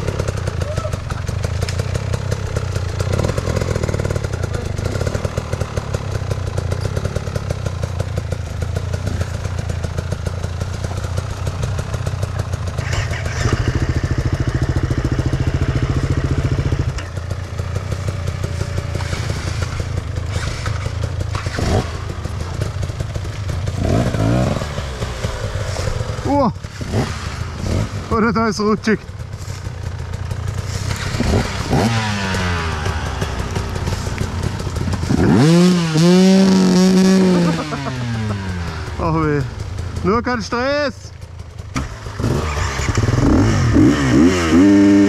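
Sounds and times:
motorcycle engine revving: 0.0 - 45.0.

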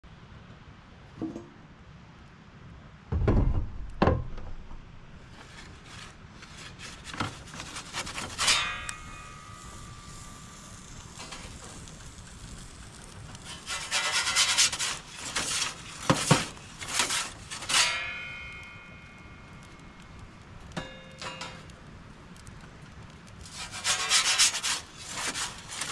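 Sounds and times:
heavy thumps: 3.1 - 4.9
metal peel scraping baking stone: 5.5 - 19.6, 23.4 - 25.9
metallic clang ringing: 8.4 - 10.6, 17.6 - 21.8.

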